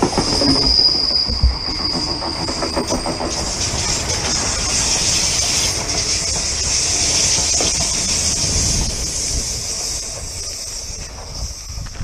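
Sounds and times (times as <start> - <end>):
electric train passing: 0.0 - 12.0.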